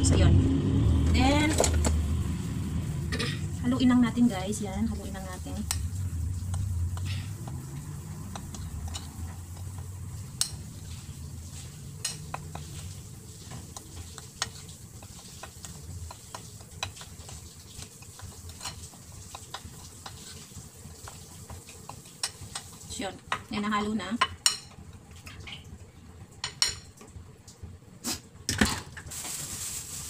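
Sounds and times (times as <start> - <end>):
spoon scraping flour on a plate: 6.5 - 22.7.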